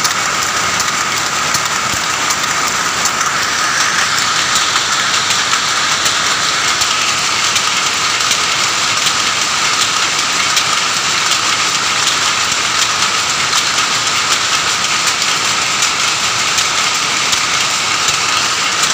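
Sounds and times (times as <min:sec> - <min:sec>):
power looms clattering: 0:00.0 - 0:18.9.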